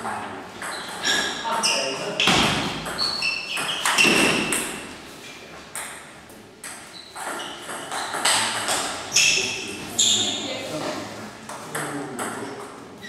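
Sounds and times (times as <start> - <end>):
table tennis ball pinging: 0.6 - 4.9, 5.7 - 9.4.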